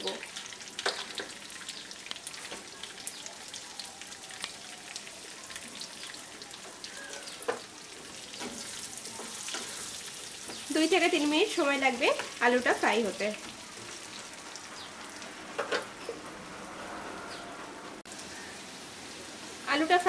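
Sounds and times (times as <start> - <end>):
potatoes sizzling in oil: 0.0 - 16.2, 18.1 - 20.0.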